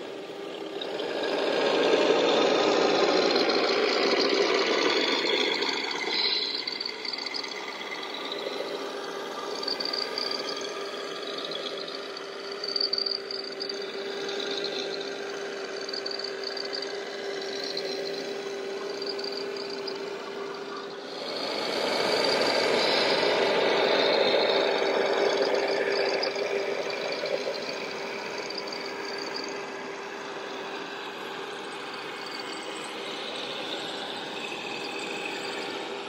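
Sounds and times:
toy truck motor hum: 0.0 - 36.0.

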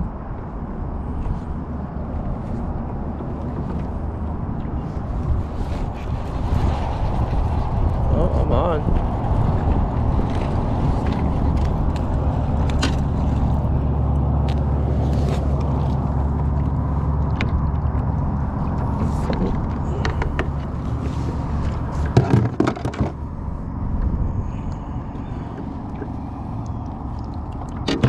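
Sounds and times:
low rumble: 0.0 - 28.0
knocks and rattles: 22.0 - 23.2.

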